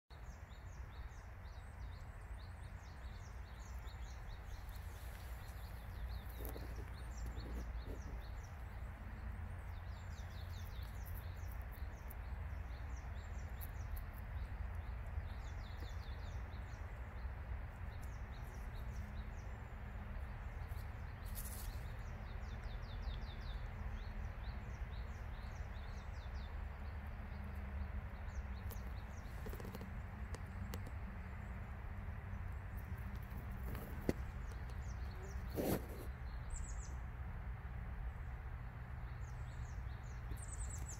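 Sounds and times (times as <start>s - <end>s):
small birds chirping: 0.1s - 40.9s
rustles: 3.0s - 16.8s, 20.2s - 23.5s, 28.6s - 31.0s, 32.7s - 37.0s.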